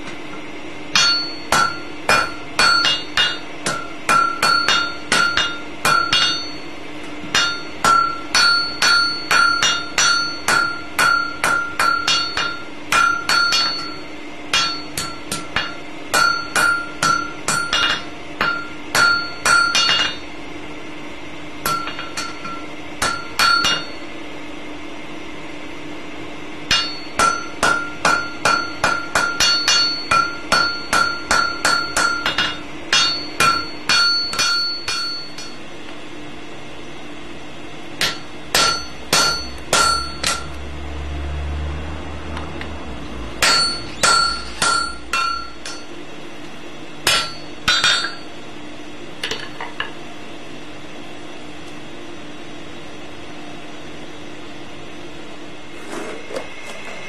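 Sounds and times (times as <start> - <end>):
steady low hum: 0.0 - 57.0
hammer ringing on hot steel: 0.9 - 20.4, 21.6 - 24.2, 26.6 - 35.9, 38.0 - 40.6, 43.4 - 48.4.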